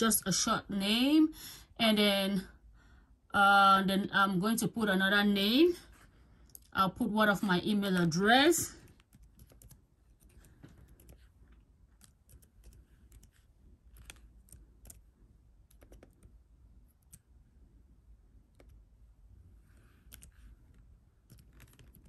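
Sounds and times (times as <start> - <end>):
typing on computer keyboard: 8.8 - 11.3, 11.9 - 16.4, 20.1 - 20.4, 21.2 - 22.0.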